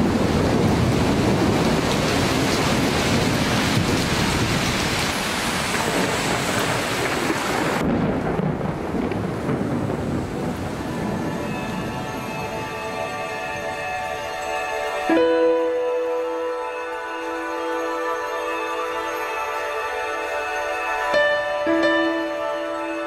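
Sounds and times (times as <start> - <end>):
thunder rumbling: 0.0 - 15.0
heavy rain: 0.0 - 23.0
music with held tones: 10.9 - 23.0.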